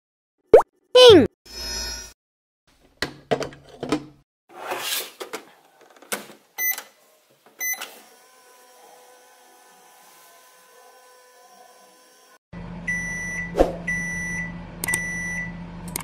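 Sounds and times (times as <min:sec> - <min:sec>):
toy microwave electronic hum: 0:07.6 - 0:16.0.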